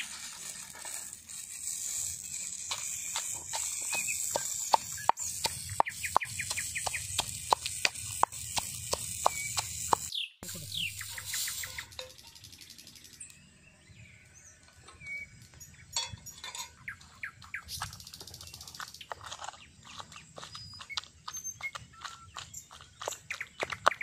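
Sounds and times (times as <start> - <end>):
birds chirping: 2.2 - 24.0
pestle pounding in wooden mortar: 3.1 - 10.1.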